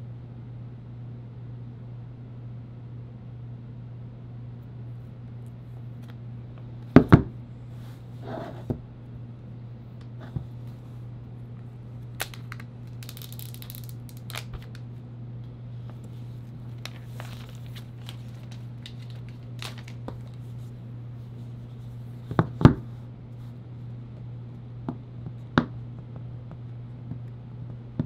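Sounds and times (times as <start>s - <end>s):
steady low hum: 0.0s - 28.0s
plastic shrink wrap crinkling: 12.1s - 14.8s, 16.5s - 20.8s.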